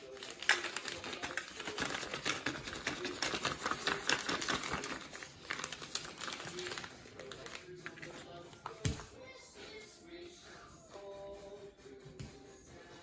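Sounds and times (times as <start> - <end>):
plastic piping bag crinkling: 0.0 - 9.0.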